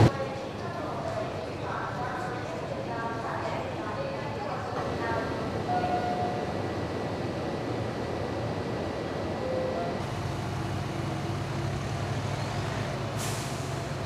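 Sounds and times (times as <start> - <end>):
vehicle engines running: 6.5 - 14.0
air brakes hissing: 13.1 - 14.0.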